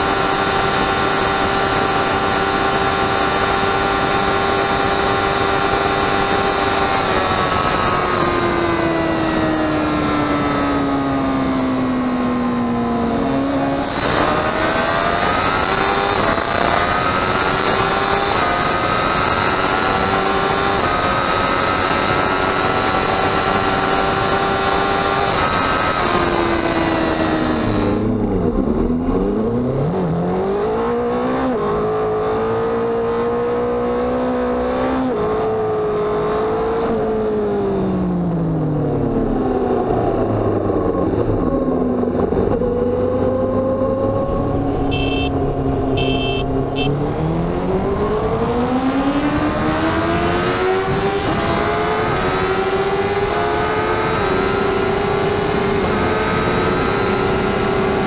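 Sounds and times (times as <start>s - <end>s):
motorcycle engine revving: 0.0s - 58.0s
wind noise: 39.6s - 58.0s.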